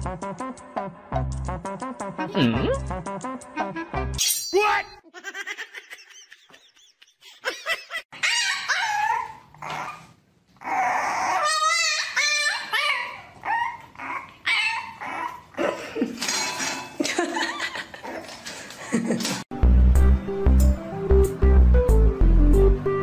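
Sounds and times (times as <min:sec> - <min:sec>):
puppies whining and yipping: 0:08.2 - 0:15.6.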